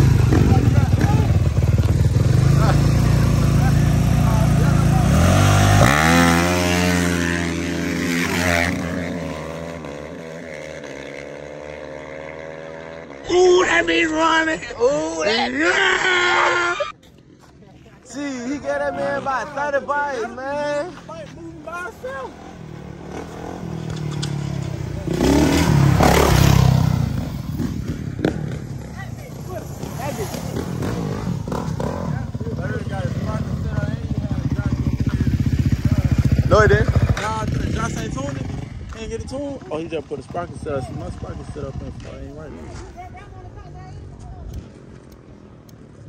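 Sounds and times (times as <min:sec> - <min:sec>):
dirt bike engine revving: 0:00.0 - 0:13.6, 0:22.0 - 0:39.3.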